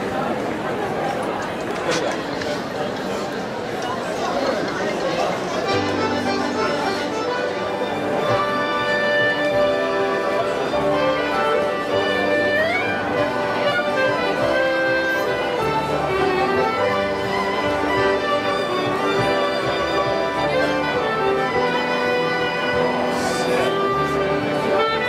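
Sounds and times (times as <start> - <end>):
clarinet: 5.6 - 25.0
piano: 5.7 - 25.0
double bass: 6.0 - 25.0.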